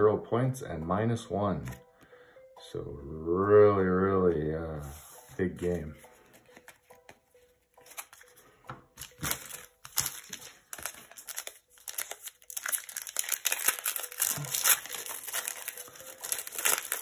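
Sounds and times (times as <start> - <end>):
foil wrapper crinkling: 9.0 - 17.0.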